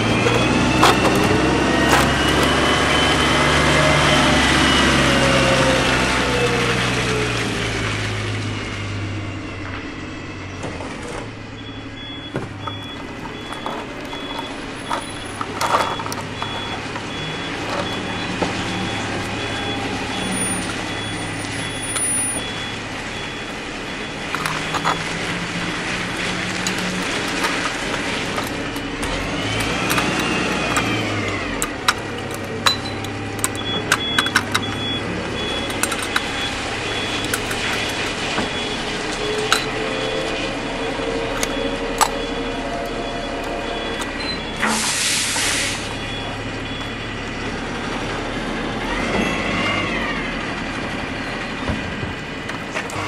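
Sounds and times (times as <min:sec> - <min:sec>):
truck engine running: 0:00.0 - 0:53.0
plastic toy parts clicking: 0:12.6 - 0:17.0, 0:24.3 - 0:25.0, 0:26.1 - 0:34.8, 0:35.4 - 0:36.5, 0:37.1 - 0:38.2
short air hiss: 0:44.6 - 0:45.9.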